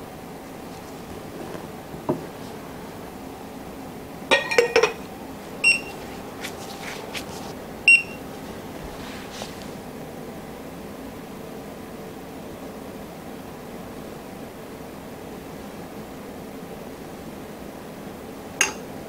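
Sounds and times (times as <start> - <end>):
scale short beeps: 5.6 - 6.0, 7.9 - 8.2.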